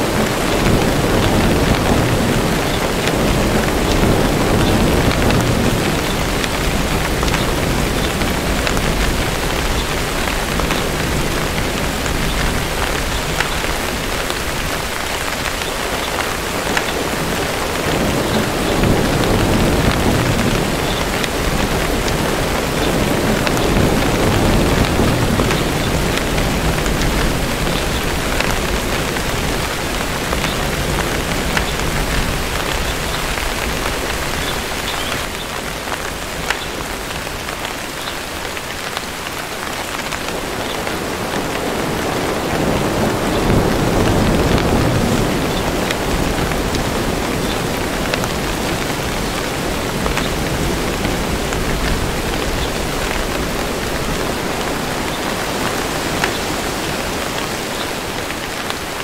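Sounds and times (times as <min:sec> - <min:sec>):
distant thunder rumbles: 0:00.0 - 0:37.6
steady rain: 0:00.0 - 0:59.0.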